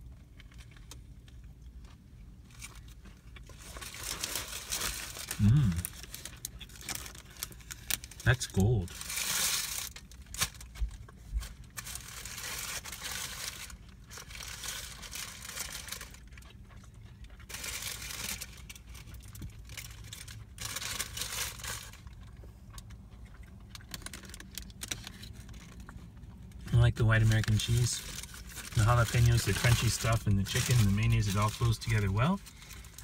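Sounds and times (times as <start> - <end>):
paper wrapper crinkling: 2.5 - 16.5, 17.4 - 22.3, 23.8 - 26.0, 26.8 - 33.0
person chewing crunchy food: 9.8 - 26.6.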